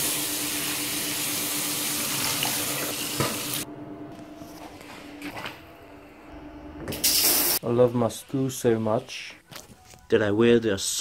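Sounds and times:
tap water running: 0.0s - 3.6s.

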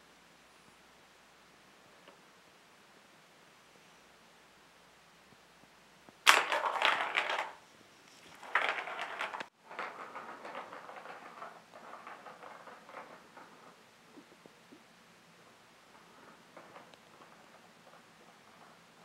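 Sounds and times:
plastic ball rattling in track: 6.2s - 14.7s, 15.4s - 19.0s.

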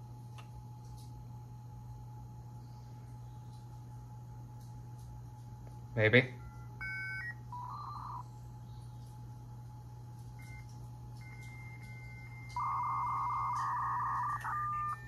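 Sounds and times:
steady low hum: 0.0s - 15.0s
warbling two-tone negotiation: 6.4s - 8.2s, 11.2s - 15.0s
dial-up modem handshake: 10.4s - 15.0s.

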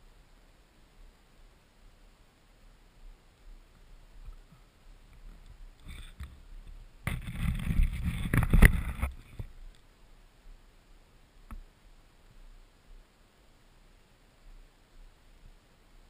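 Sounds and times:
camera rubbing and scraping: 5.3s - 6.4s, 7.0s - 9.6s.

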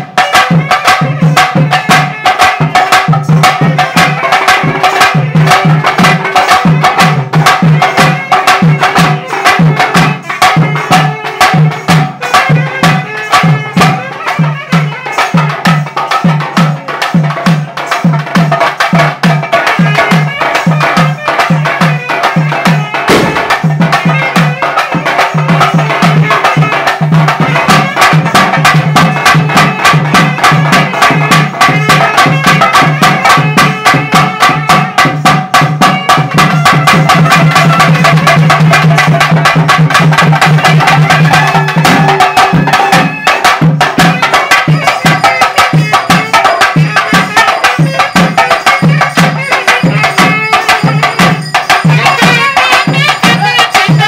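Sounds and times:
fast drum strokes: 0.0s - 54.0s
held melodic tone: 19.5s - 35.1s, 36.0s - 54.0s.

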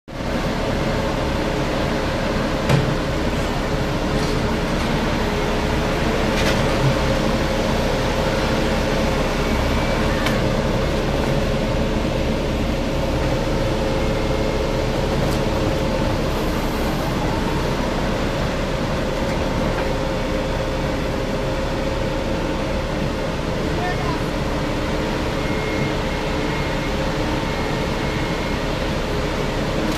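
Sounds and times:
diesel engine running: 0.1s - 29.9s.

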